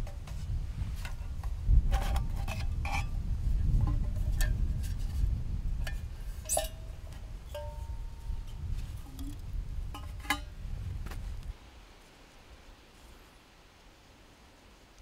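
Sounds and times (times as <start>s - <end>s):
metal tin and cup clinking: 5.9s - 8.1s.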